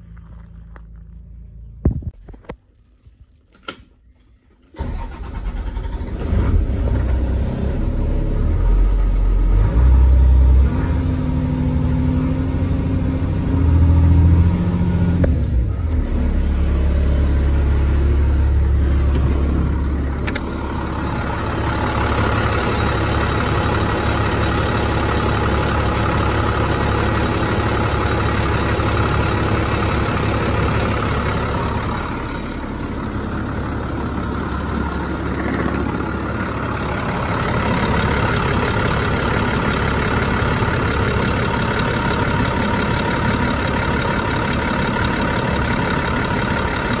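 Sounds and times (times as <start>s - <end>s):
click: 3.5s - 4.7s
diesel engine droning: 4.7s - 47.0s.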